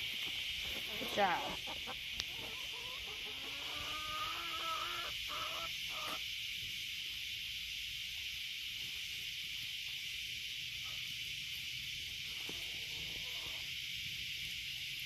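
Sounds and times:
cicadas droning: 0.0 - 15.0
hens clucking: 0.2 - 6.2.

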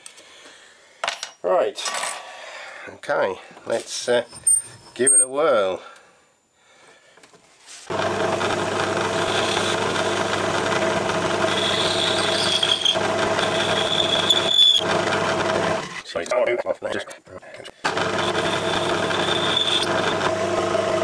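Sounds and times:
lathe running: 7.9 - 16.0, 17.8 - 21.0
high squeal from cutting: 11.5 - 14.8.

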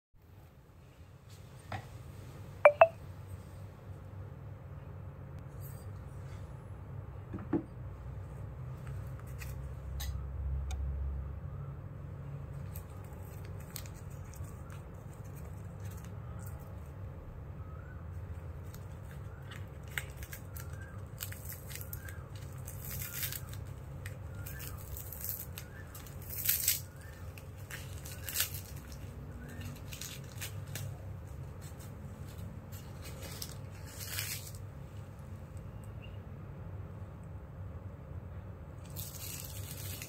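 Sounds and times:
paper wrapper rustling and crinkling: 12.5 - 17.0, 18.2 - 35.2, 38.8 - 40.0.

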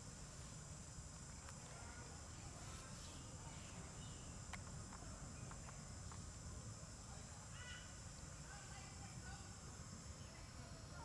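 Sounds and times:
insects droning: 0.0 - 11.0
faint ticks: 4.5 - 6.4.

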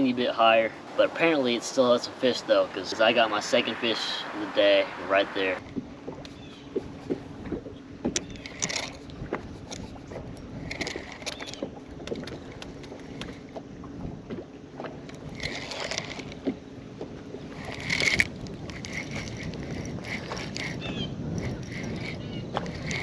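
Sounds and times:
low hum: 0.0 - 23.0
water lapping at hull: 0.0 - 23.0
fishing reel whirring: 8.3 - 9.1, 10.5 - 13.4, 15.0 - 16.5, 17.5 - 23.0.

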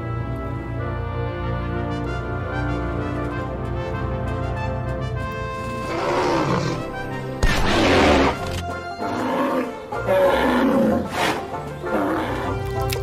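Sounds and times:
background music: 0.0 - 13.0
large animal growling: 5.8 - 12.6.

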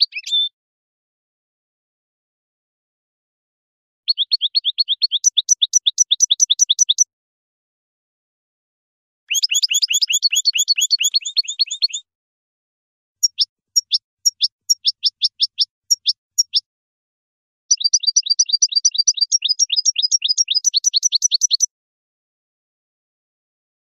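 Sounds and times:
finch twittering song: 0.0 - 0.5, 4.1 - 7.1, 9.3 - 12.1, 13.2 - 16.7, 17.7 - 21.7.

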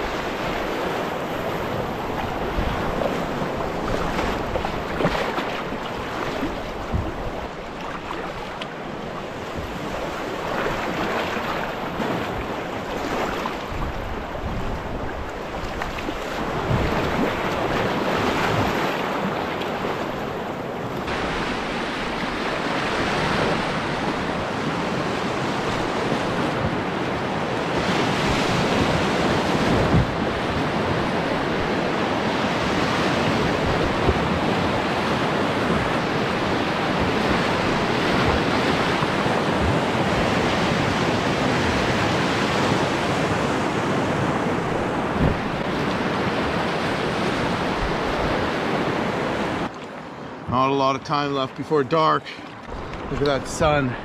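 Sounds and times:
whitewater rapids rushing: 0.0 - 49.7, 50.7 - 54.0
paddle strokes splashing: 0.0 - 50.7, 51.3 - 54.0.

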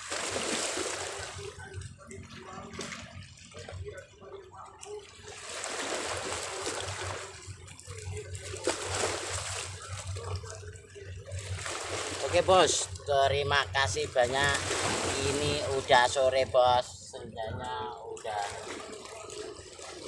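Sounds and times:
waves splashing over rocks: 0.0 - 1.6, 5.2 - 7.4, 11.4 - 13.0, 13.6 - 16.8.

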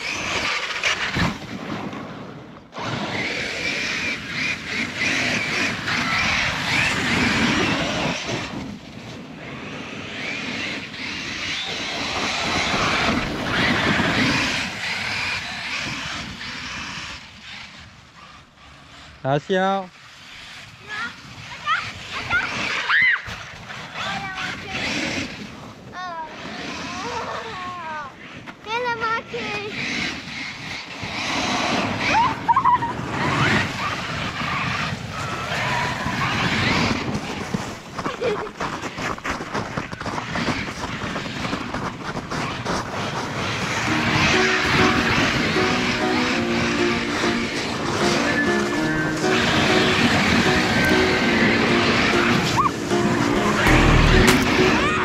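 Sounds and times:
tyres churning through snow: 0.0 - 55.0
electric motor whining: 9.4 - 18.8, 43.6 - 55.0.

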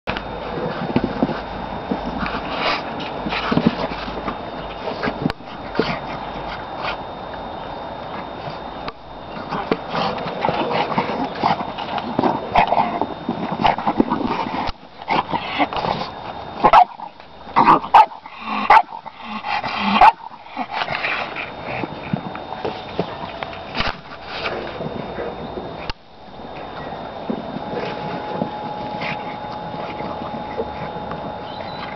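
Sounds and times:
dog playing with ball: 9.2 - 31.9.

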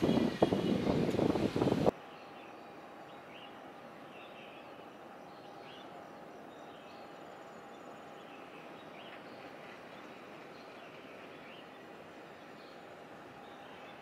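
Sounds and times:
steady hiss: 0.0 - 14.0.

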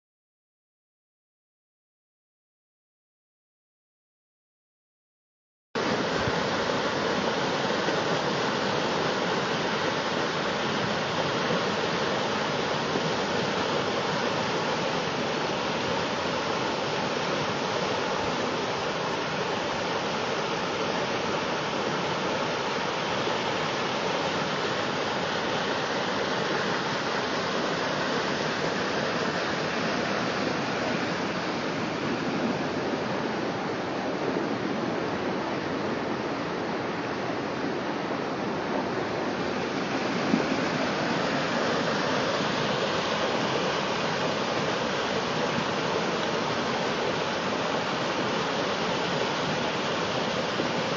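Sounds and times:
river water rushing over a dam: 5.8 - 50.9.

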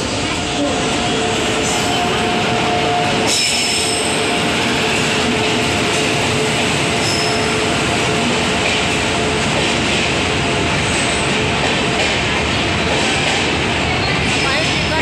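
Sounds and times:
train wheels rumbling on track: 0.0 - 15.0.

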